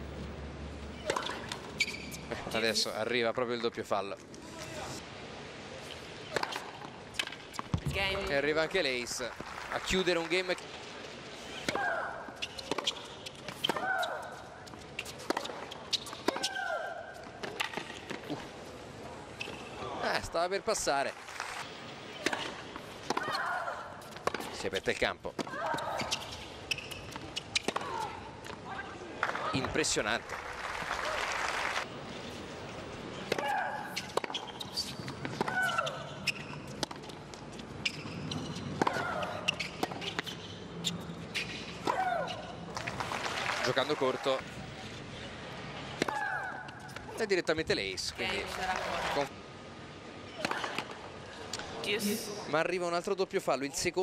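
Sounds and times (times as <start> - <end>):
racket striking tennis ball: 38.8 - 40.3.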